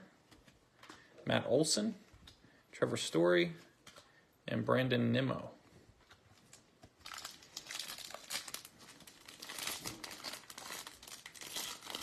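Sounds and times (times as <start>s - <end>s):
foil wrapper crinkling and tearing: 7.0s - 12.0s.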